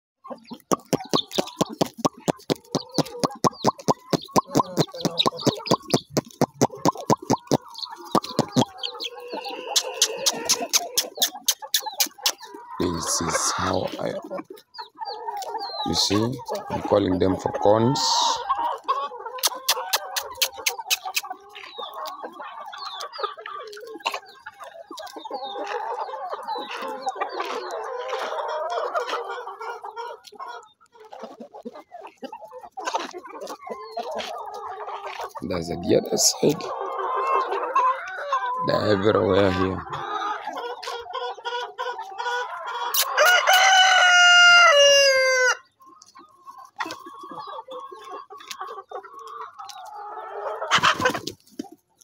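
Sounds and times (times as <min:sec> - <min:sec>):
chickens clucking: 0:00.2 - 0:52.0
fast sharp clicks: 0:00.6 - 0:08.7, 0:09.8 - 0:12.4, 0:19.4 - 0:21.2
rooster crowing: 0:42.9 - 0:45.6.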